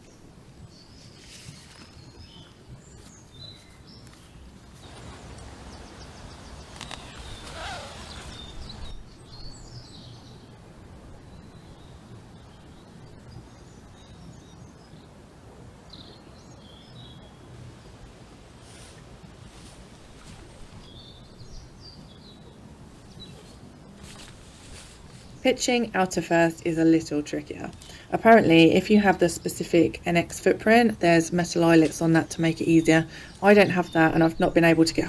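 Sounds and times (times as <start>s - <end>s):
low background noise: 0.0s - 35.0s
tent flysheet rustling: 1.0s - 9.2s, 18.5s - 21.2s, 23.2s - 25.5s
birds chirping and calling: 4.8s - 10.2s.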